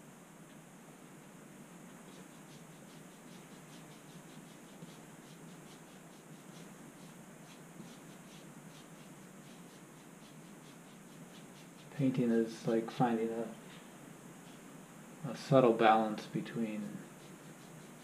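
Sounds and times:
steady hiss: 0.0s - 18.0s
paintbrush scratching on canvas: 1.9s - 14.9s, 16.6s - 18.0s.

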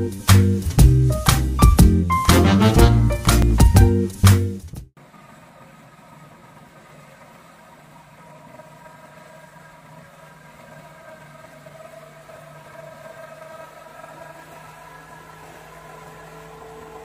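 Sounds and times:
tractor diesel engine running: 10.8s - 17.0s.

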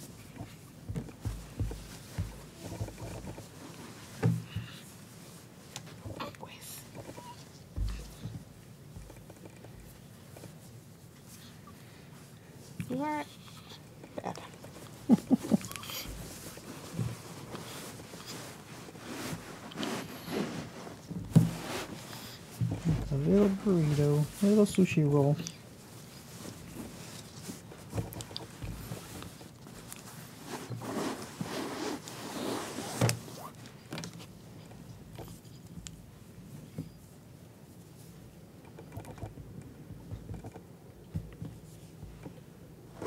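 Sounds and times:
cloth rustling: 0.0s - 6.0s, 14.4s - 34.4s.

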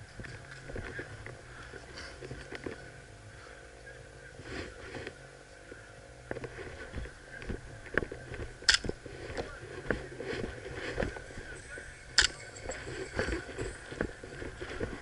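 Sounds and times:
low steady rumble: 0.0s - 15.0s
footsteps in dry grass: 4.3s - 15.0s
clothing rustling: 6.4s - 15.0s.

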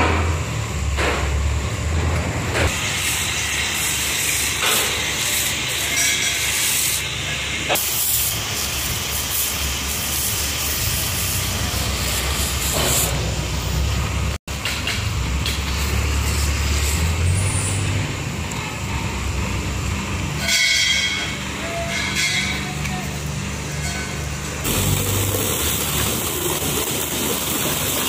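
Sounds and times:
pressure washer spray hissing: 2.7s - 14.1s, 24.6s - 28.0s.

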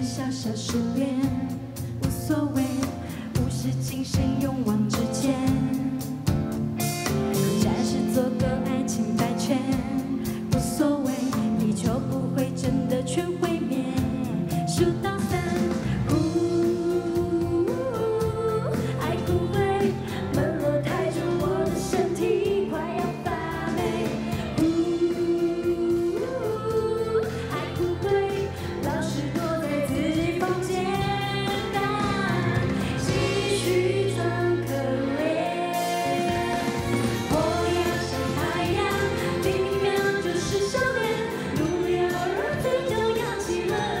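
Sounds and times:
woman singing into a microphone: 0.0s - 6.4s, 7.4s - 44.0s
live band with steady beat: 0.0s - 44.0s.

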